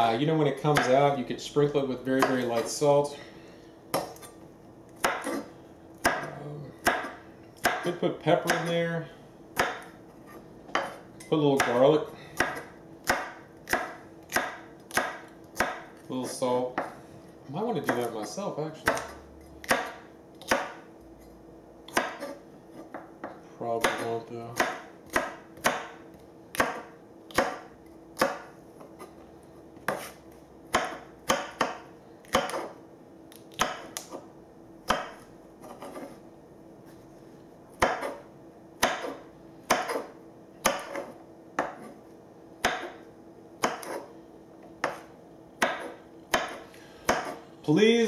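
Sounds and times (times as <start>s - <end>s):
knife chopping on wooden board: 0.7s - 1.0s, 2.2s - 2.8s, 5.0s - 8.7s, 9.6s - 17.0s, 18.8s - 20.9s, 21.9s - 29.2s, 29.8s - 36.2s, 37.8s - 38.2s, 38.8s - 42.0s, 42.6s - 43.0s, 43.6s - 44.1s, 44.8s - 47.4s.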